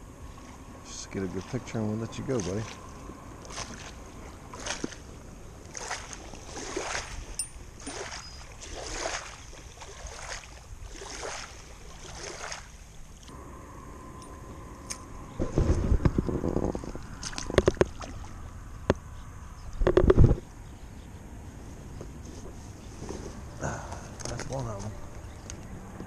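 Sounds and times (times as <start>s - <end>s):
small waves lapping at bank: 0.0s - 13.3s, 16.8s - 18.6s
bumps and rustling near microphone: 15.4s - 18.1s, 19.7s - 20.5s, 21.6s - 25.5s.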